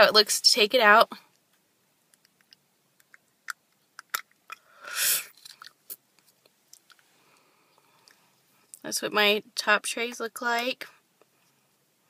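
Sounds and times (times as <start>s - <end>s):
small wet clicks: 1.3s - 4.7s, 5.3s - 7.1s.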